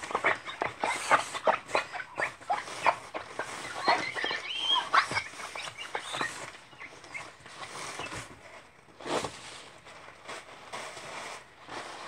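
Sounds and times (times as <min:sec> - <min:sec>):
tissue squeaking on glass: 0:00.0 - 0:08.3.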